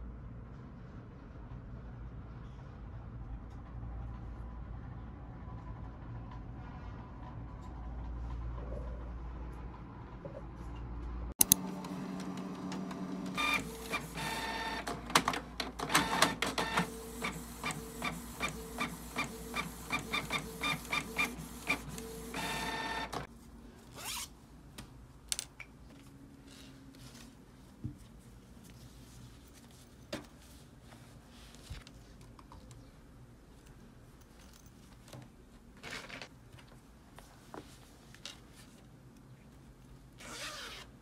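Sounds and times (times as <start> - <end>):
inkjet printer printing with clicks: 11.4 - 23.3.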